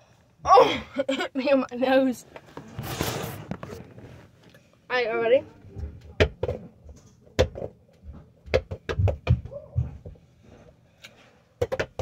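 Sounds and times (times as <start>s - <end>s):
rubber ball bouncing knocks: 8.4s - 9.5s, 11.6s - 12.0s.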